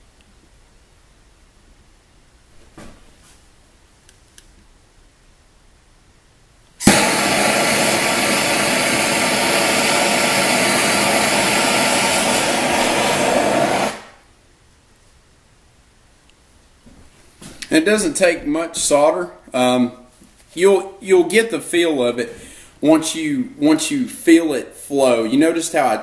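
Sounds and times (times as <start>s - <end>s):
gas torch igniting: 6.8s - 14.3s
loud hissing torch flame: 6.8s - 14.3s.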